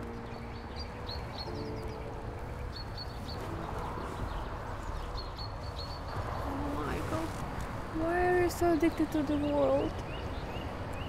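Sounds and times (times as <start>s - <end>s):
soft held chord: 0.0s - 4.9s.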